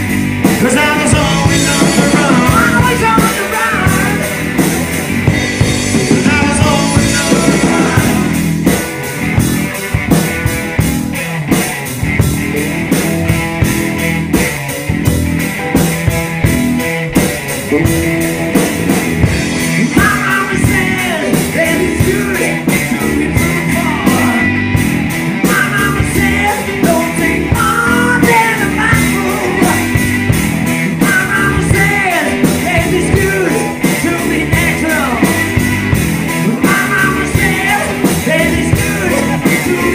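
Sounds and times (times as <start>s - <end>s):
bass guitar: 0.0s - 39.9s
drums: 0.0s - 39.9s
electric guitars: 0.0s - 39.9s
organ: 0.0s - 39.9s
man singing: 0.4s - 8.8s, 17.7s - 30.3s, 30.9s - 39.9s.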